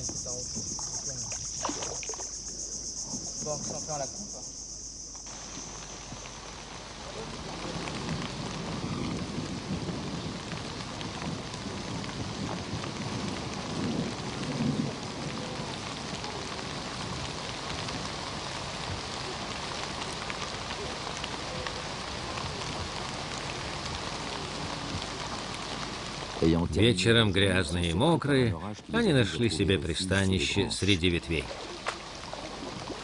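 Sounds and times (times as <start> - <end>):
heavy rain pouring: 5.2 - 33.0
thunder rumbling: 5.3 - 26.8.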